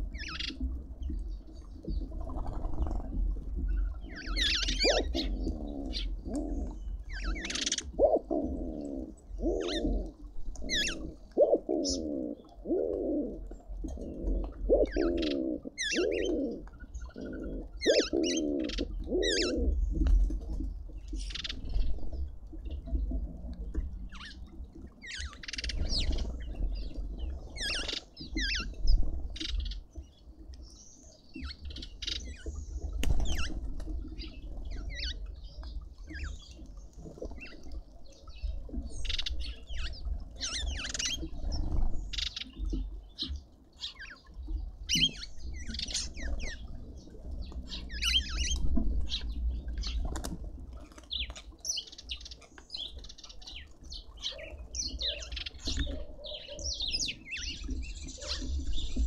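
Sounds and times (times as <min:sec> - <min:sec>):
small birds chirping and twittering: 0:00.0 - 0:59.0
bird wing flaps: 0:33.0 - 0:34.0, 0:50.0 - 0:51.1.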